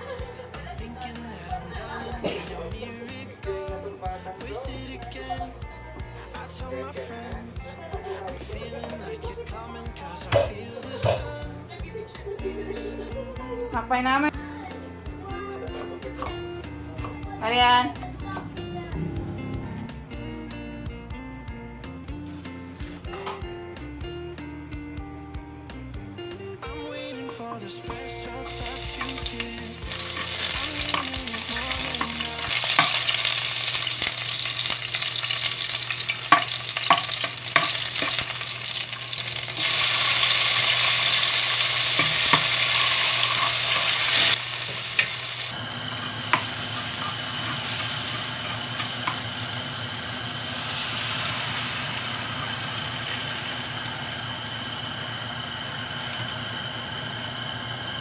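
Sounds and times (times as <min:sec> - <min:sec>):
meat sizzling in hot oil: 0:28.3 - 0:54.6
utensil scraping a wok: 0:28.5 - 0:45.4.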